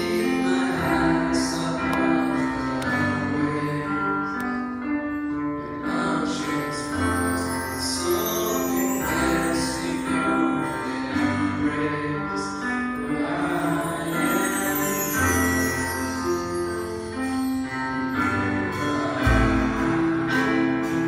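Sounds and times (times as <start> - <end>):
vocal group singing: 0.0 - 4.6, 5.8 - 16.4, 17.6 - 21.0.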